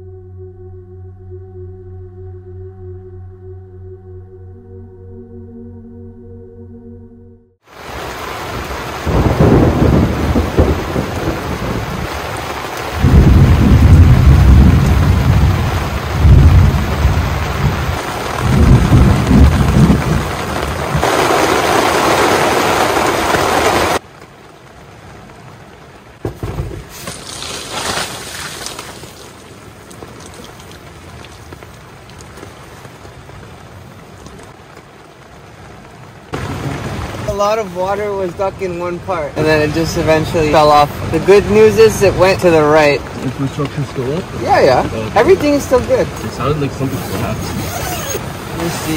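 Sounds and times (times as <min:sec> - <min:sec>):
heavy rain: 0:07.6 - 0:48.9
rain on a tent: 0:07.6 - 0:48.9
thunder rumbling: 0:07.8 - 0:24.0, 0:36.3 - 0:48.9
sudden thuds: 0:26.2 - 0:27.3.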